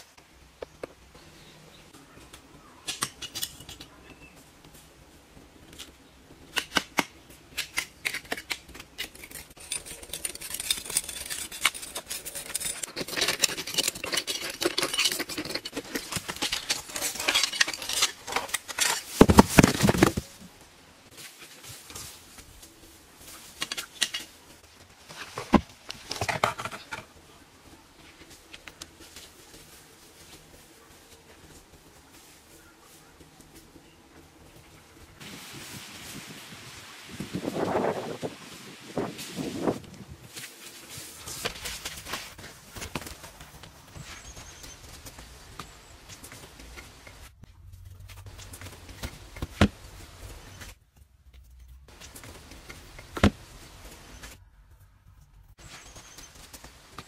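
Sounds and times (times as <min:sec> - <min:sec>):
knocks and scrapes on rocks: 0:08.0 - 0:20.4, 0:25.0 - 0:27.2.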